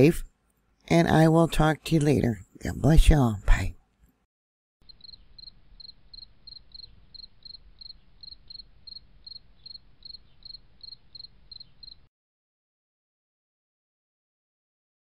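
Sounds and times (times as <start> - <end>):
cricket chirping: 4.8 - 12.1.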